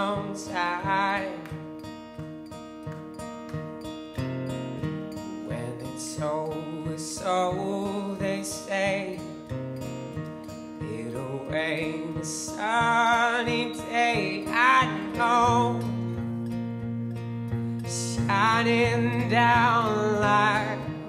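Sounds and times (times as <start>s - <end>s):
man singing: 0.0s - 1.6s, 5.4s - 9.4s, 10.8s - 16.0s, 17.9s - 21.0s
strummed acoustic guitar: 0.0s - 21.0s.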